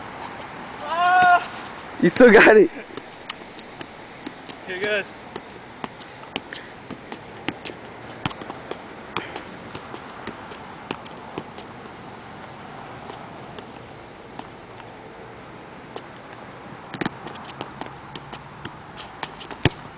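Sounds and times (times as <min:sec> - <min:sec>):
ball tapping off a shoe: 0:05.3 - 0:11.7, 0:16.9 - 0:19.9.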